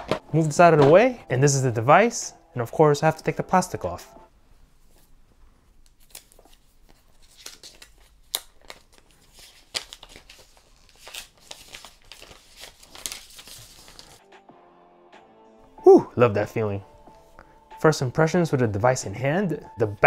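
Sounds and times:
plastic film crinkling: 0:05.8 - 0:14.2.

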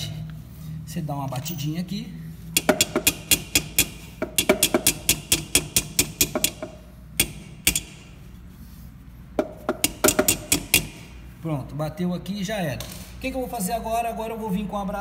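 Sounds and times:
light taps on copper pipe: 0:09.4 - 0:11.0.

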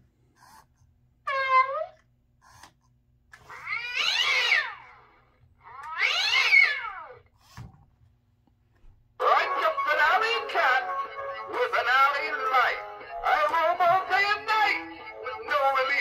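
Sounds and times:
toy cat meowing: 0:01.3 - 0:02.0, 0:03.4 - 0:05.0, 0:05.6 - 0:07.2
toy cat yowling: 0:01.3 - 0:02.0, 0:03.4 - 0:07.2.

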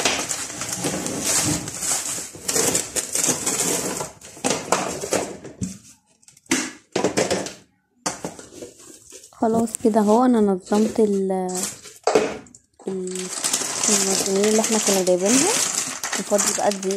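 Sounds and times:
plastic packets crinkling: 0:00.0 - 0:05.1, 0:08.7 - 0:12.2, 0:12.8 - 0:16.9.

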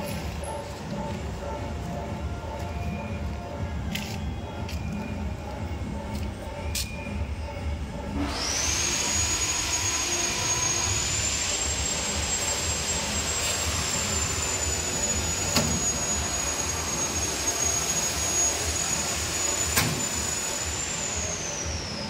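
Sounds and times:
electric motor whine: 0:08.1 - 0:22.0.

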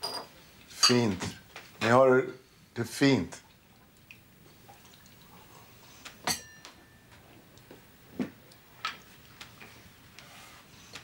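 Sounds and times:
glass clinking: 0:00.0 - 0:01.1, 0:06.2 - 0:07.2.

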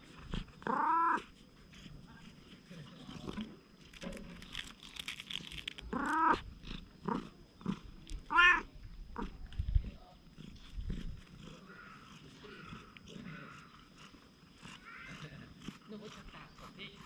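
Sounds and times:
cat meowing: 0:00.6 - 0:01.2, 0:05.9 - 0:06.4, 0:08.2 - 0:08.7.

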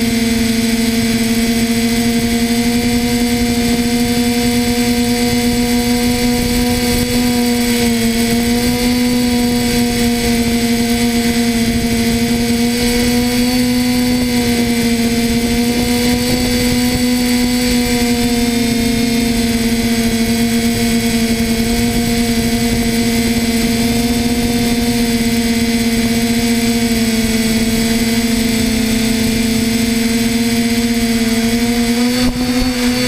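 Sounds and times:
drone propellers humming: 0:00.0 - 0:33.0.

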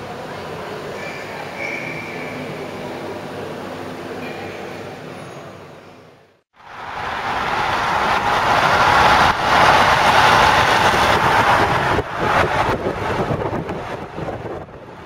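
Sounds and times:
vehicle road noise: 0:00.0 - 0:15.0
rushing wind: 0:06.6 - 0:15.0.

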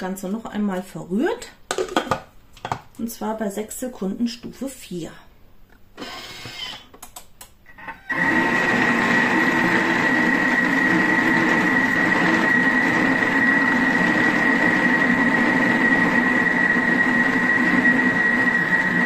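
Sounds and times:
food mixer motor whining: 0:06.0 - 0:06.9, 0:07.8 - 0:19.0.

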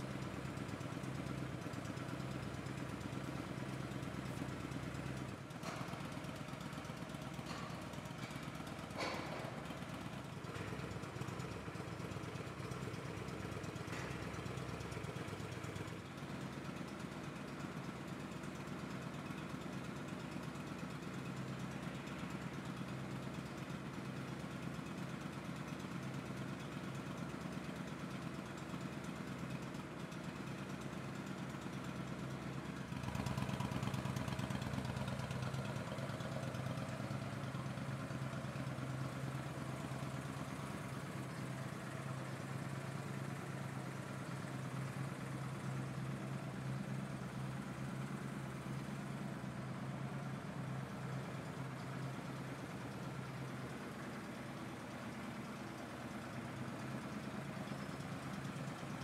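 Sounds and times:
motorcycle engine idling: 0:00.0 - 0:59.0.

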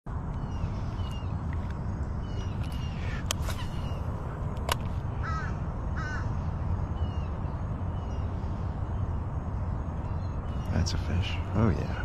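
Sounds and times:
steady low rumble: 0:00.1 - 0:12.0
crow cawing: 0:02.4 - 0:04.0, 0:05.1 - 0:07.2
sharp clicks: 0:04.5 - 0:04.9.

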